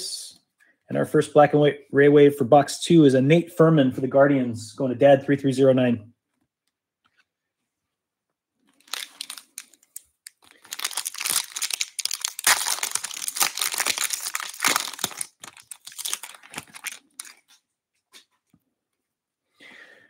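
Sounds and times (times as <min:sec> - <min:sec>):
foil crackling: 0:08.8 - 0:17.6
foil wrapper tearing and crinkling: 0:08.8 - 0:17.6.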